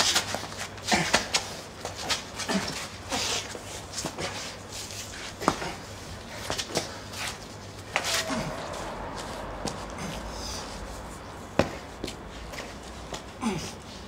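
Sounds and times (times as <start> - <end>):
men grunting and gasping: 7.9 - 11.4, 13.3 - 14.0.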